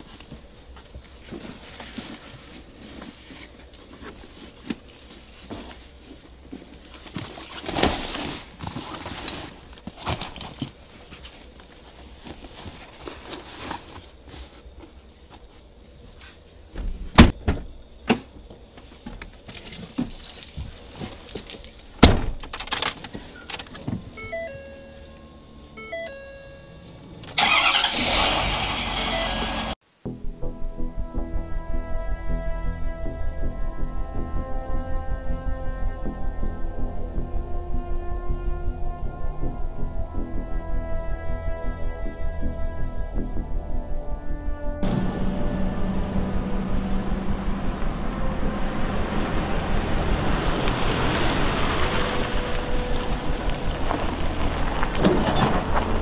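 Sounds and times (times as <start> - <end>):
bags rustling: 1.1 - 15.1, 19.4 - 24.2
truck warning chime: 23.4 - 27.8, 29.0 - 29.7.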